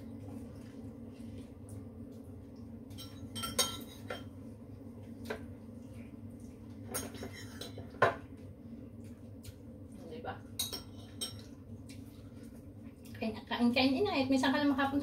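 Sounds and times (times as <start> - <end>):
low steady hum: 0.0 - 15.0
spoons clinking on ceramic plates: 3.0 - 4.3, 6.9 - 8.2, 10.6 - 11.5.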